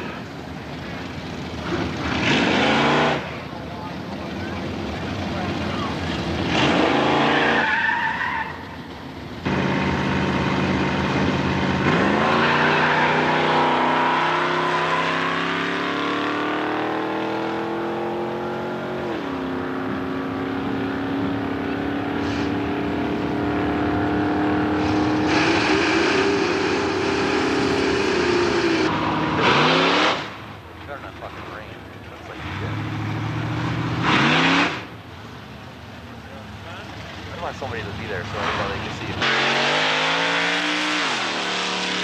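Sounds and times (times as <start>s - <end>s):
drag racing engines accelerating: 0.0s - 42.0s
tyres squealing: 7.0s - 8.9s.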